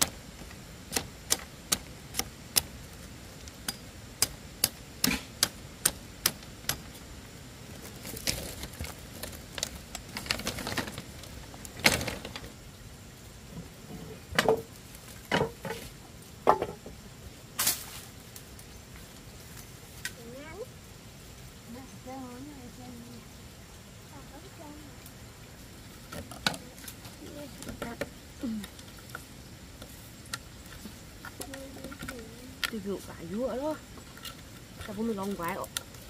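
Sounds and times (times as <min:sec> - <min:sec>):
hammer tapping on bamboo: 0:00.9 - 0:02.7, 0:03.6 - 0:06.9
bamboo slats scraping and clattering: 0:07.8 - 0:12.6, 0:13.6 - 0:16.9, 0:17.6 - 0:18.1
bamboo pieces knocking: 0:14.3 - 0:14.7, 0:15.3 - 0:16.9.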